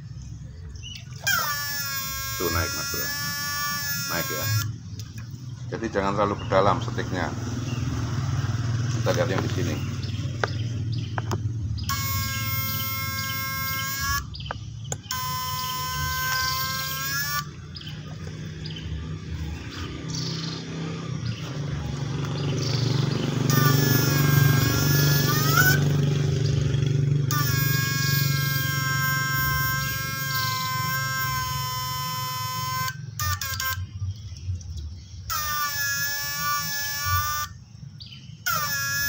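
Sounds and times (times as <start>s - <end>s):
high-pitched electric whine: 1.2s - 4.8s, 11.8s - 34.1s, 35.3s - 37.8s, 38.4s - 39.0s.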